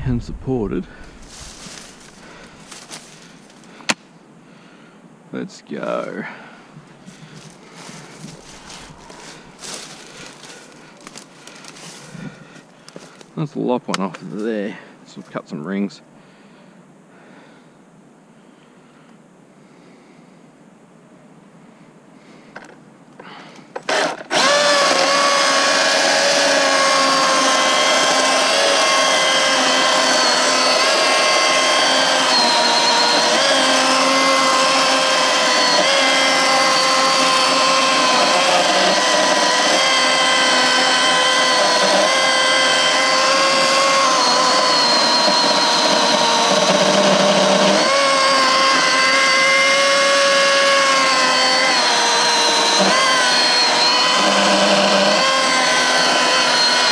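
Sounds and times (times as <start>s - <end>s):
chainsaw cutting log: 1.0s - 4.0s, 6.8s - 13.3s, 23.2s - 56.9s.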